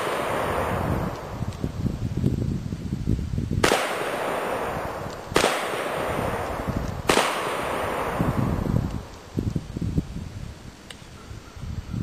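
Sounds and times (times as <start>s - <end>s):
shotgun shots: 0.0s - 1.2s, 3.6s - 8.7s.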